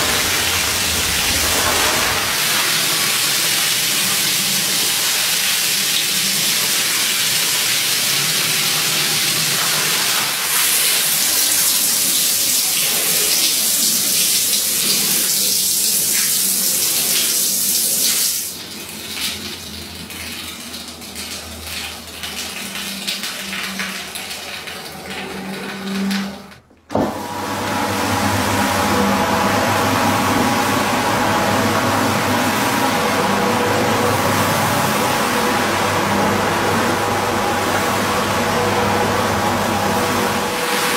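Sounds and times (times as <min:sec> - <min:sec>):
hose water splashing on rug: 0:00.0 - 0:25.7.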